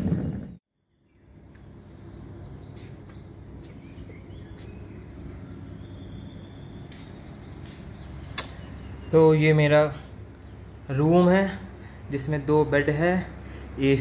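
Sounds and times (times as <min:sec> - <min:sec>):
faint insect chirps: 0:00.8 - 0:09.0
low background hum: 0:00.8 - 0:14.0.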